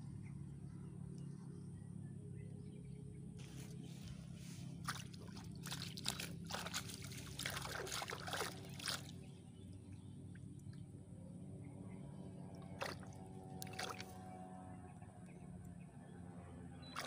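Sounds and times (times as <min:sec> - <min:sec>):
steady low hum: 0:00.0 - 0:17.0
water splashing and sloshing: 0:03.4 - 0:10.7, 0:12.5 - 0:14.4.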